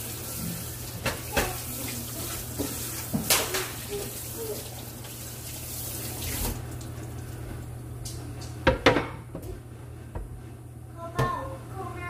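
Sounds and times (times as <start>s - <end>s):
tap water running into metal sink: 0.0s - 7.2s.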